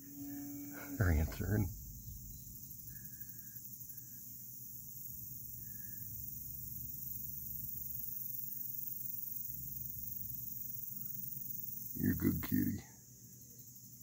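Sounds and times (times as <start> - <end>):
high insect drone: 0.0 - 14.0
low rumble: 0.8 - 3.9.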